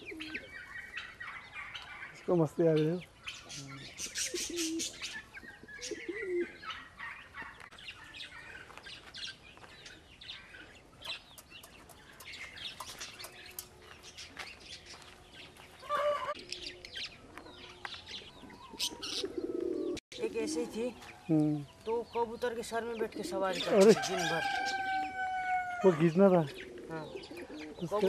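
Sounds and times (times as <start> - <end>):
pigeons and chickens calling: 0.0 - 28.0.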